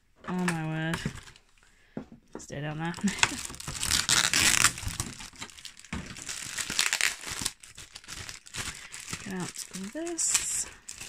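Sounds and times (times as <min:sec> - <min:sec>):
plastic packaging crinkling: 0:02.7 - 0:11.0.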